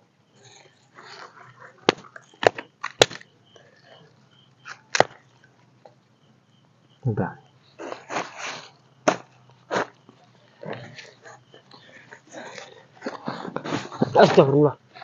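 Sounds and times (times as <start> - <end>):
firewood cracking and snapping: 1.0 - 3.7, 4.6 - 5.5.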